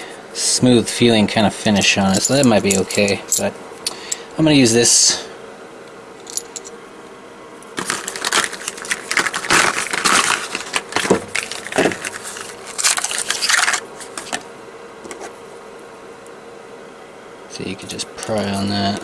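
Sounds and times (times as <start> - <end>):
cardboard box crinkling and scraping: 7.8 - 14.4.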